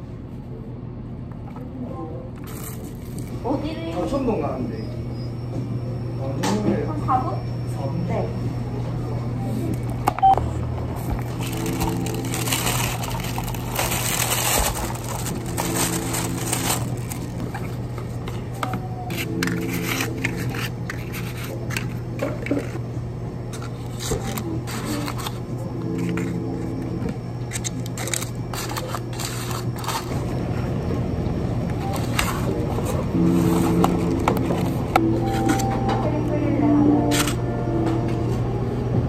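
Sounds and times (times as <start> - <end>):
low hum: 9.1 - 23.8
paperboard box being folded: 11.2 - 17.7
plastic bag crinkling: 11.2 - 17.8.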